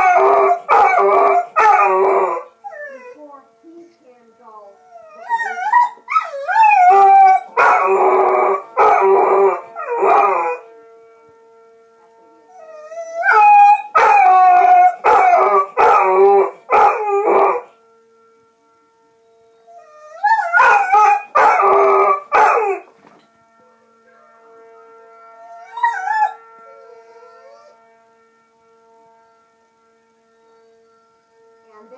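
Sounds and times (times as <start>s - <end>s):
dog howling: 0.0s - 3.3s, 4.8s - 10.6s, 12.5s - 17.7s, 19.6s - 22.9s, 25.4s - 27.8s
faint siren tone: 0.0s - 31.9s.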